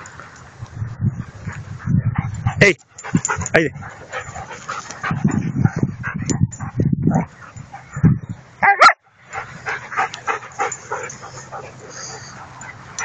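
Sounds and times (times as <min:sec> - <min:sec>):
dogs growling and barking: 0:02.0 - 0:13.0
dog yelping high-pitched: 0:08.6 - 0:09.0.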